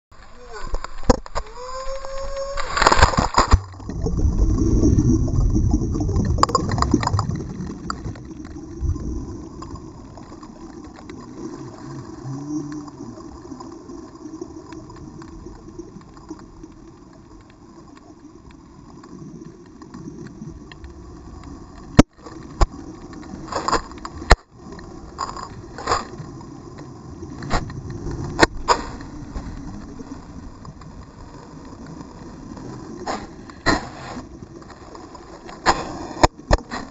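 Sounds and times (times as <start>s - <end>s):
low underwater rumble: 1.7s - 18.7s
water churning with bubbles: 2.2s - 17.2s.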